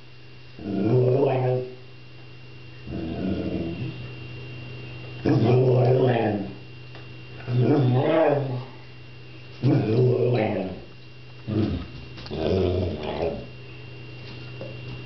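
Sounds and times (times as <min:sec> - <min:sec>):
dog whining growly vocalizations: 0:00.6 - 0:01.8, 0:02.8 - 0:04.1, 0:05.2 - 0:06.6, 0:07.4 - 0:08.8, 0:09.6 - 0:13.6.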